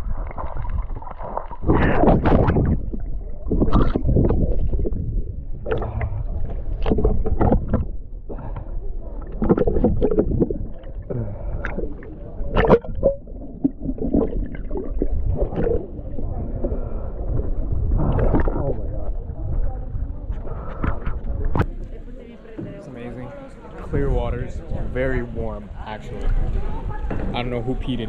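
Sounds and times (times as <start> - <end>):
constant low rumble: 0.0 - 22.0
water splashing and sloshing: 0.0 - 24.9.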